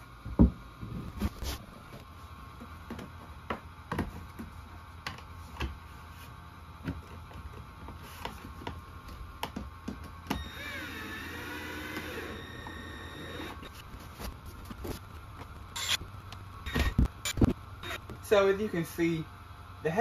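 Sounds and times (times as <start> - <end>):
cordless drill driving a screw: 10.3 - 13.7.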